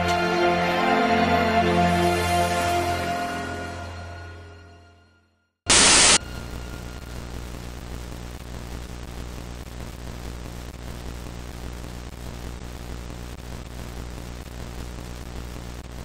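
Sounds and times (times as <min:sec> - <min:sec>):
static hiss: 0:05.7 - 0:16.0.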